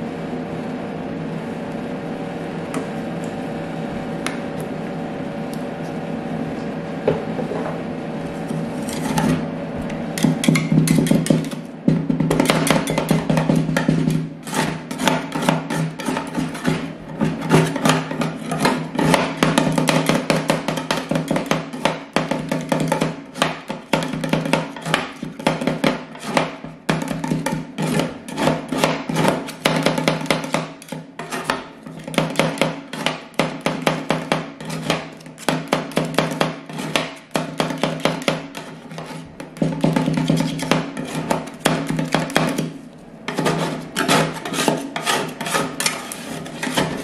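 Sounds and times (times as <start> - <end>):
spatula scraping metal plate: 8.4 - 9.5, 10.2 - 11.7, 12.3 - 42.7, 43.3 - 47.0.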